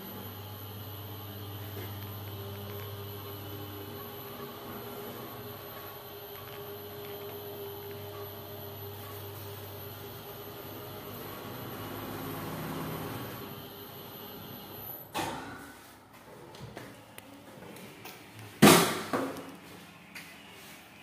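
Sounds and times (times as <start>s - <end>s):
elevator low hum: 0.0s - 15.1s.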